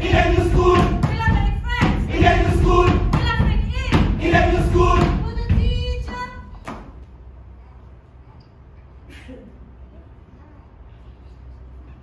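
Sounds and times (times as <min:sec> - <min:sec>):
group of voices chanting: 0:00.0 - 0:05.2
steady thumping beat: 0:00.0 - 0:06.4.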